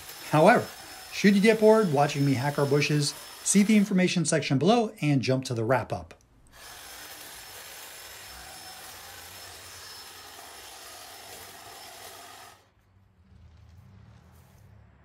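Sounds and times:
hedge trimmer cutting branches: 0.0 - 4.4, 6.5 - 12.7
low rumble: 12.8 - 15.0.

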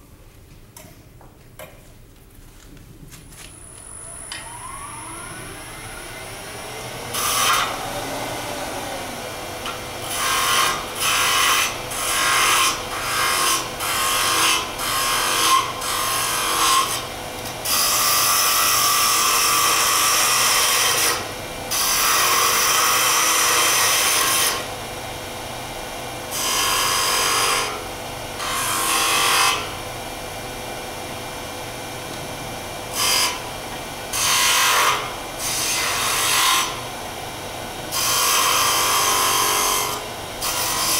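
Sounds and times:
lathe motor hum: 3.6 - 13.0.

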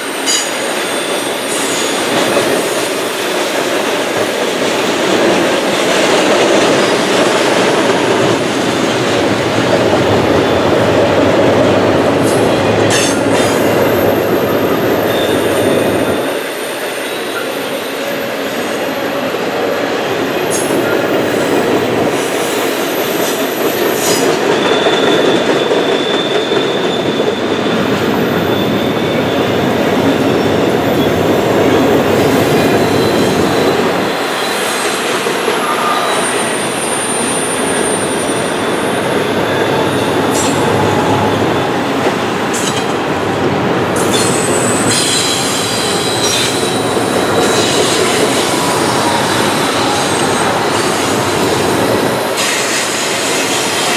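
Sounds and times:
train wheels rumbling on rails: 0.0 - 53.9
high wheel squeals: 12.3 - 18.6, 22.7 - 43.0, 44.0 - 53.9.

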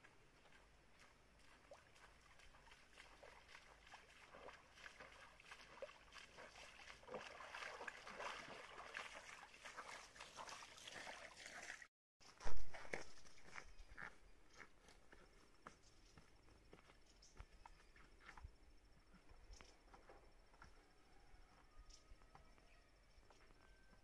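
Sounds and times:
trickle of flowing water: 0.0 - 11.9
feet splashing through stream: 0.0 - 13.7.

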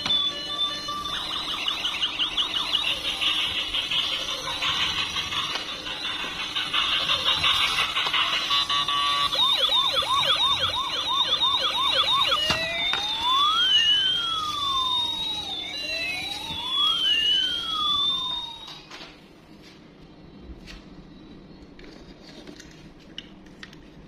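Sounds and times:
toy electronic siren: 0.0 - 18.9.

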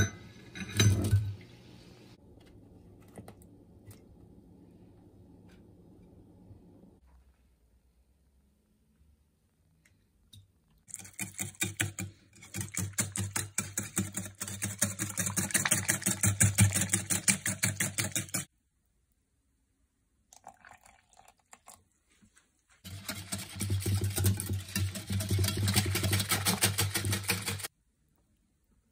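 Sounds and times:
whisk beating in a glass bowl: 10.9 - 18.5, 22.8 - 27.7.

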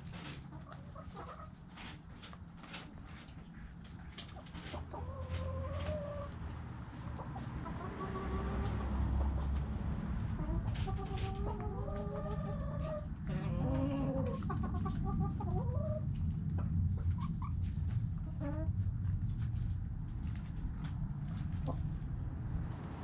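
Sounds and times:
chickens clucking and calling: 0.0 - 19.7, 20.4 - 23.0
steady low rumble: 12.4 - 23.0.

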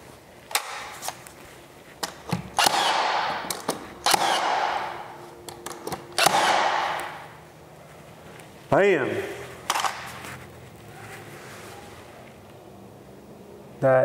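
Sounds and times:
brad nailer firing: 2.0 - 7.3.

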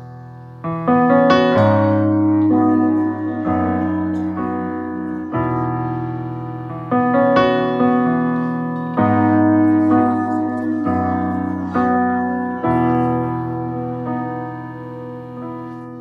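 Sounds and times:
piano chords on keyboard: 0.0 - 16.0.

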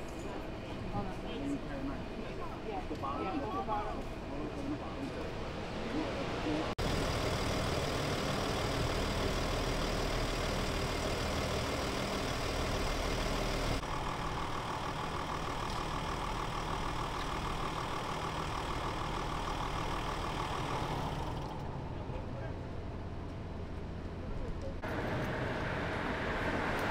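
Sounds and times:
van engine idling: 6.8 - 26.9.

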